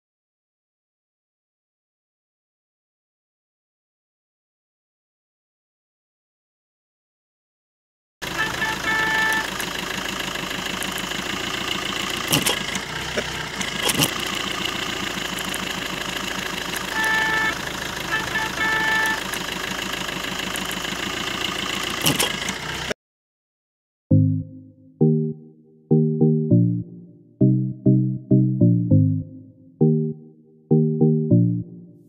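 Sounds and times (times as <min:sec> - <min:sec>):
car engine idling: 0:08.2 - 0:23.0.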